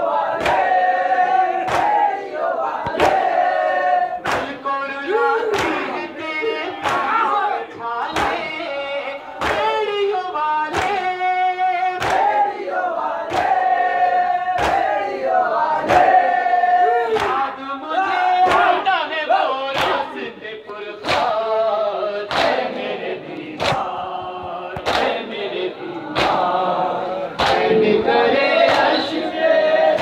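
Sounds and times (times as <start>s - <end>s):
men chanting: 0.0s - 30.0s
man singing through a microphone: 4.4s - 12.0s, 16.5s - 22.3s, 23.2s - 30.0s.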